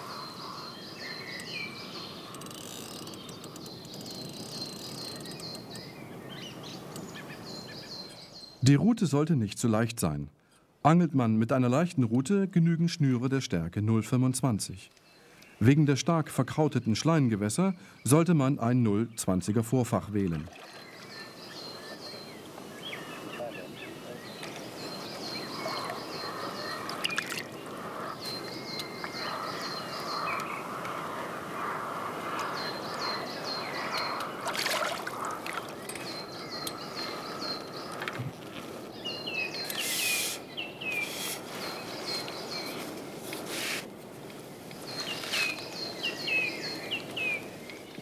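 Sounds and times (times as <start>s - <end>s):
lower falling bird calls: 0.0s - 9.3s, 14.2s - 48.0s
wind: 0.0s - 48.0s
birds singing high notes: 16.6s - 42.8s
lapping water: 25.6s - 27.6s, 34.2s - 36.0s
fish splashing: 26.8s - 27.6s, 34.4s - 35.9s.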